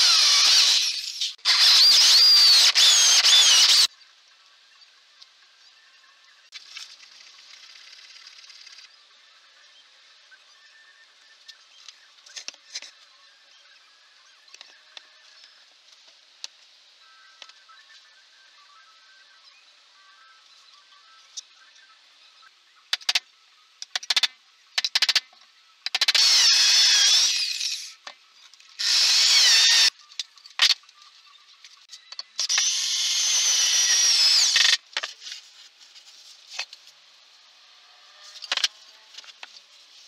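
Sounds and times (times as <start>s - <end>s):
power drill whirring: 0.0s - 3.9s, 26.0s - 27.9s, 28.8s - 29.9s, 32.4s - 34.8s.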